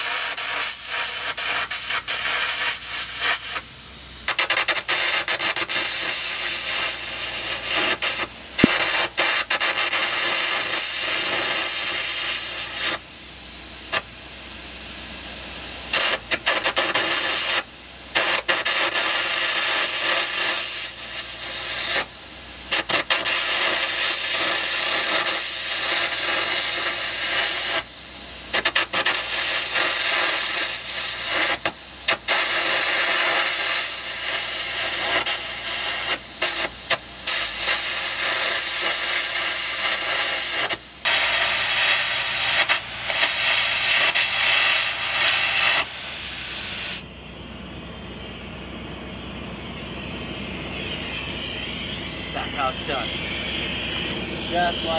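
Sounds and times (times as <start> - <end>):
arc gouging crackling hiss: 0.0 - 54.9.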